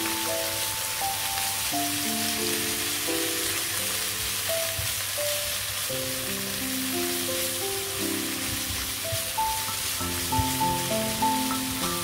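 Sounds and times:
paste sizzling in hot oil: 0.0s - 12.0s
slow background music: 0.0s - 12.0s.

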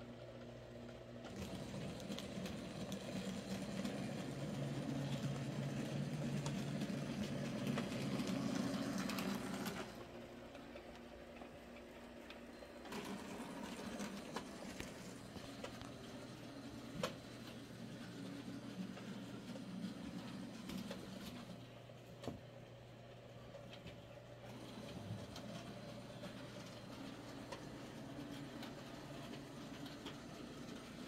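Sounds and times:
fine clicking of train wheels: 0.0s - 31.0s
model train motor whir and rumble: 1.3s - 10.0s.

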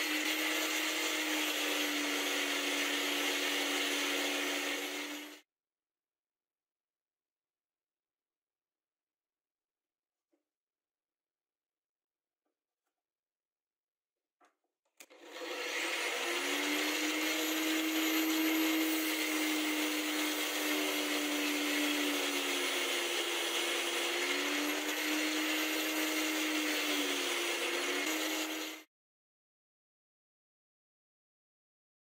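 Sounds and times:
bench grinder grinding drill bit: 0.0s - 5.4s, 15.0s - 28.9s.

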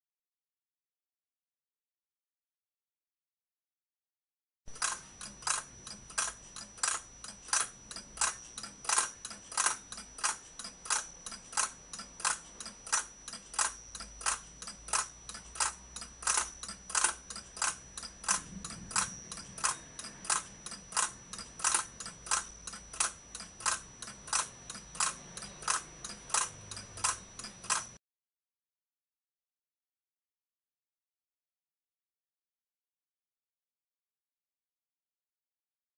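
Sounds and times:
clock ticking: 4.7s - 28.0s.

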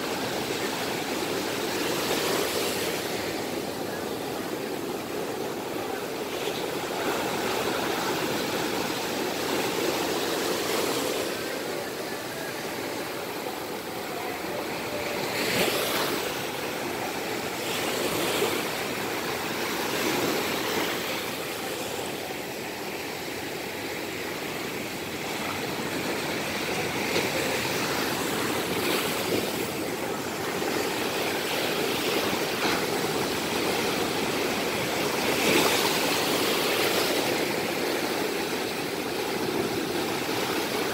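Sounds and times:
waves washing: 0.0s - 40.9s.

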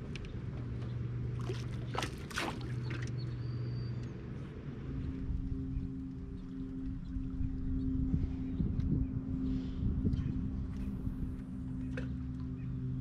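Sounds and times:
boat motor humming: 0.0s - 13.0s
water splashes: 1.3s - 3.3s.

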